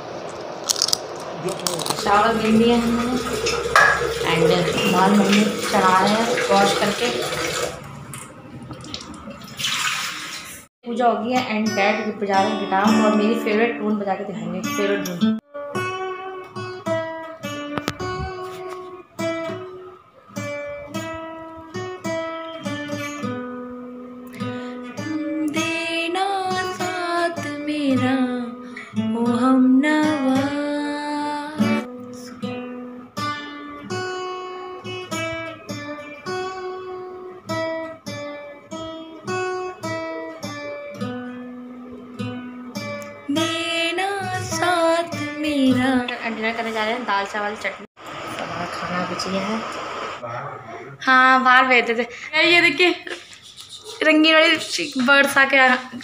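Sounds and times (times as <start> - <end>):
fingerstyle acoustic guitar: 11.6 - 47.7.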